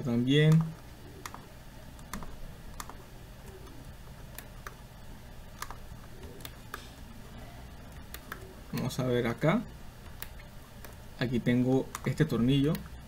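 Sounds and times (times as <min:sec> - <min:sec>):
steady low hum: 0:00.0 - 0:13.0
computer mouse clicking: 0:00.4 - 0:04.9, 0:05.5 - 0:07.1, 0:07.8 - 0:09.1, 0:10.0 - 0:13.0.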